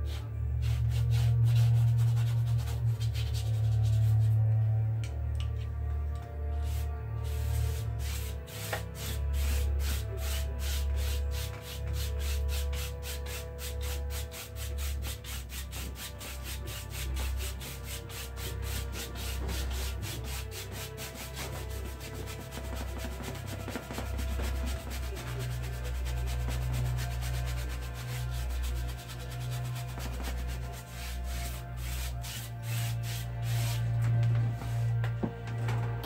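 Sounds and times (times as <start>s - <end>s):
paintbrush scratching on canvas: 6.6s - 35.0s.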